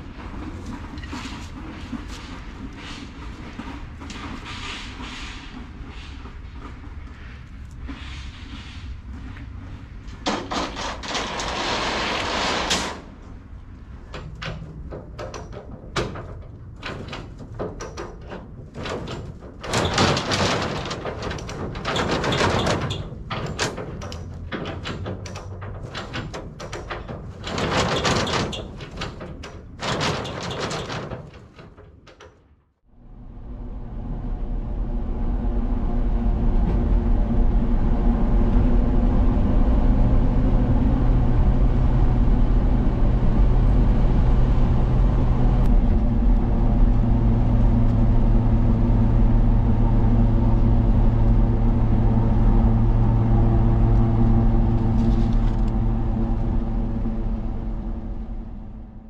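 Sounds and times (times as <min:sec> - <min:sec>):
scraping noise: 0:00.7 - 0:13.2
knocking and clattering: 0:10.1 - 0:11.9, 0:13.8 - 0:32.6
low vehicle rumble: 0:32.9 - 0:59.0.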